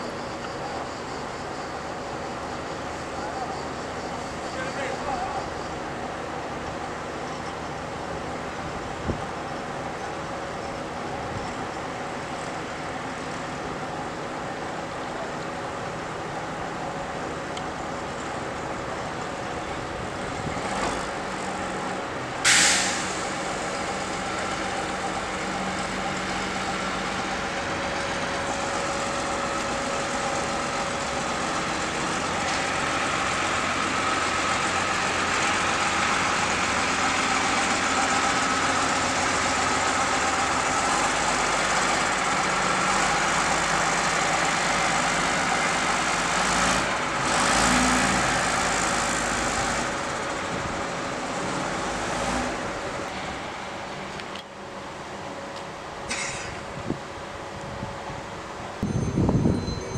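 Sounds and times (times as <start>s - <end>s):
diesel engine running: 0.0s - 59.5s
short sharp burst of noise: 22.4s - 24.2s.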